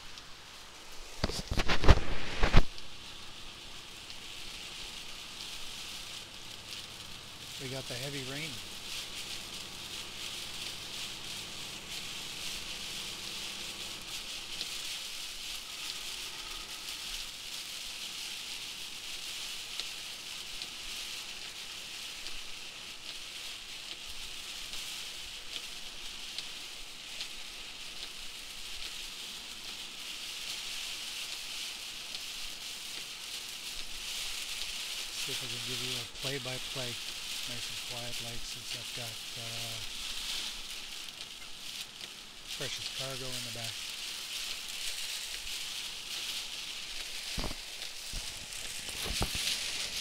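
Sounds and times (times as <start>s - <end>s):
heavy rain on windshield: 0.0s - 50.0s.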